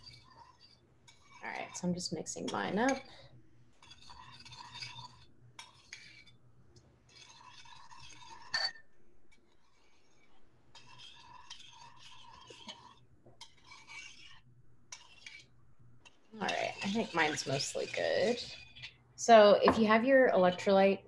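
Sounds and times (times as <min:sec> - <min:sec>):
spoon clinking in glass jar: 0:08.5 - 0:08.8.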